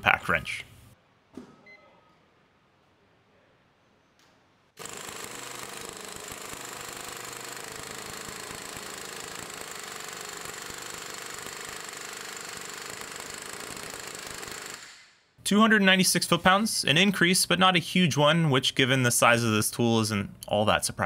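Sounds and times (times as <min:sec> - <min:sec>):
impact wrench rattling: 0:04.8 - 0:14.8.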